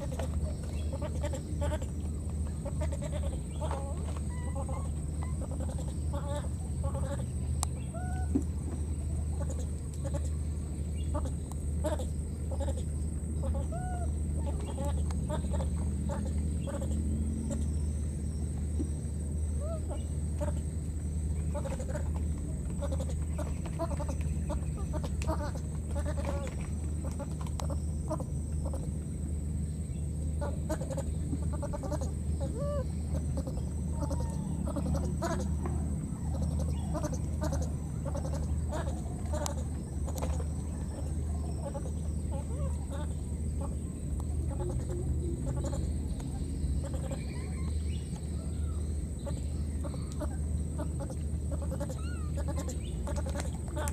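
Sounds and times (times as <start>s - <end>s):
animal calls: 0.0s - 10.4s, 11.0s - 17.9s, 19.5s - 20.7s, 21.4s - 29.0s, 30.3s - 53.9s
low hum: 0.0s - 53.9s
rising and falling animal call: 30.4s - 43.7s
short chirping animal calls: 36.1s - 43.8s.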